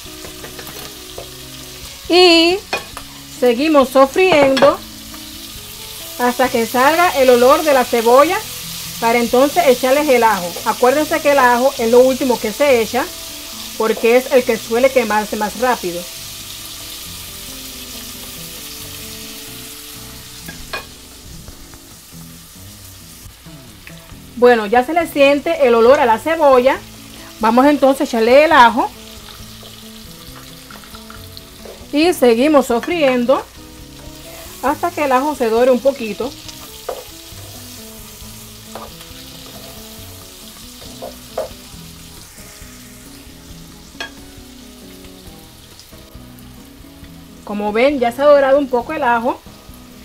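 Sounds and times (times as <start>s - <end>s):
vegetables sizzling in hot fat: 0.0s - 50.0s
utensil knocking against pot: 4.3s - 4.8s.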